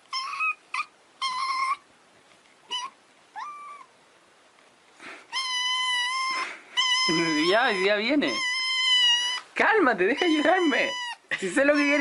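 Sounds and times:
kitten meowing: 0.1 - 1.8, 2.7 - 3.9, 5.3 - 9.5, 10.1 - 12.0.

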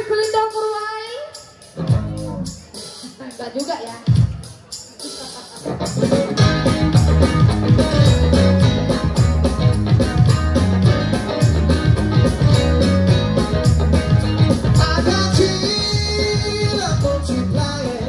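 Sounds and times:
steady drum beat: 1.6 - 18.0
bass guitar: 1.8 - 2.8, 5.6 - 18.0
electric guitar: 5.5 - 18.0.

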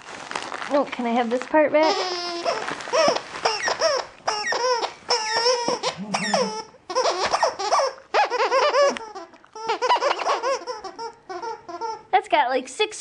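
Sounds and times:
dog toy squeaking: 1.8 - 12.1.

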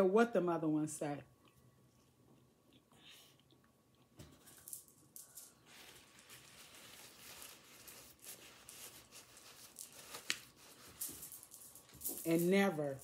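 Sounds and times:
paper napkin crinkling: 5.5 - 11.5.

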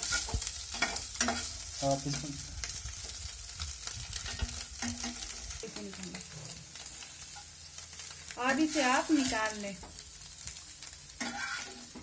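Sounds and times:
metal spatula scraping a pan: 0.0 - 1.7, 4.2 - 5.5, 11.1 - 12.0
oil sizzling: 0.0 - 12.0.

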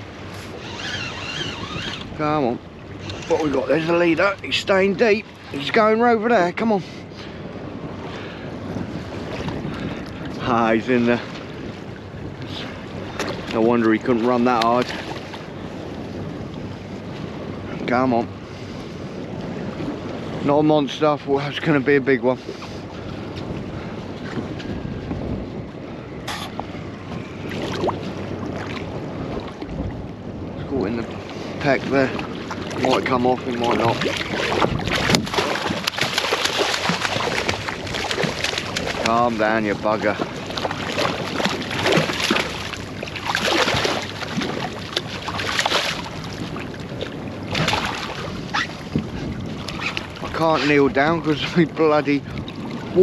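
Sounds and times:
wind buffeting microphone: 0.0 - 53.0
fish thrashing and splashing: 32.2 - 48.7.

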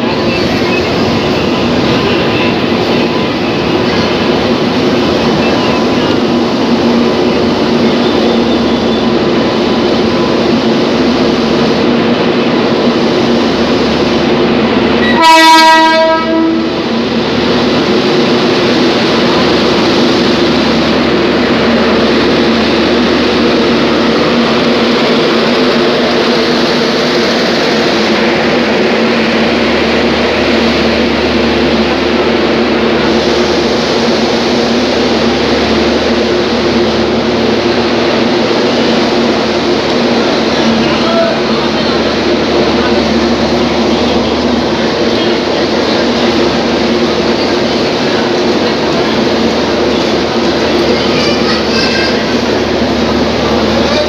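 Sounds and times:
train wheels rumbling on rails: 0.0 - 54.0
train horn blast: 15.0 - 16.8.

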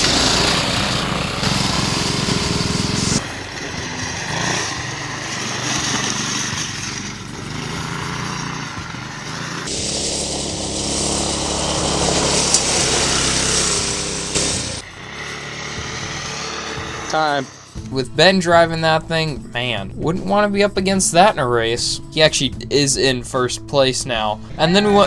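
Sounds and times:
go-kart engine running: 0.0 - 19.4.

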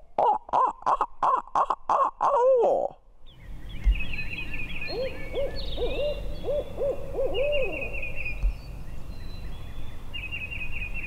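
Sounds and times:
songbirds chirping and trilling: 3.2 - 11.0
owl hooting: 4.8 - 8.2.

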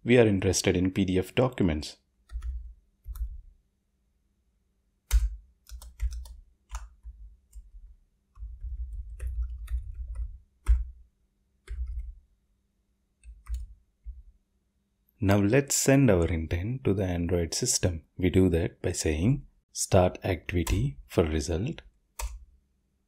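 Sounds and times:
computer keyboard typing: 2.3 - 3.5, 5.1 - 11.0, 11.6 - 12.2, 13.2 - 14.2, 20.6 - 21.0, 22.2 - 22.4.

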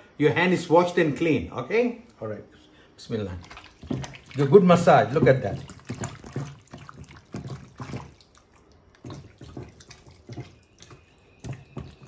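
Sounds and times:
hands squishing wet meat: 3.2 - 12.0.

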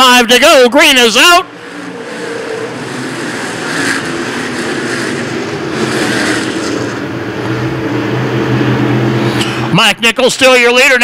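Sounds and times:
race car engines accelerating: 0.0 - 11.0.

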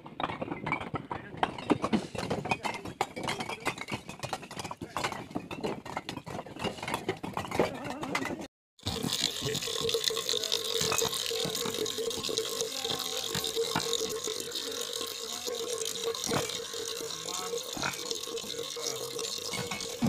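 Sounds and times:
water splashing into metal pot: 8.8 - 20.0.

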